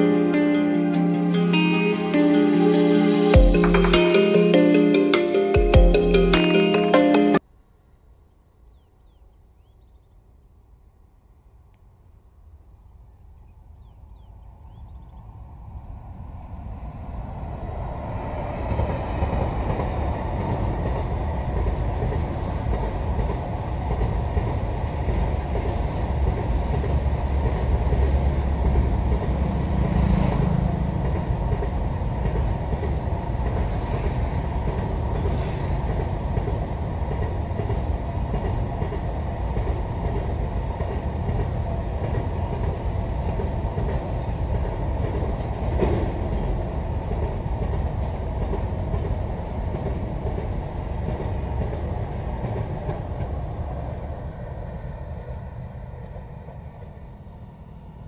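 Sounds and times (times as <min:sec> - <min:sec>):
train wheels rumbling on rails: 0:16.0 - 0:58.0
clickety-clack over rail joints: 0:18.6 - 0:57.0
train clanks: 0:18.7 - 0:54.4.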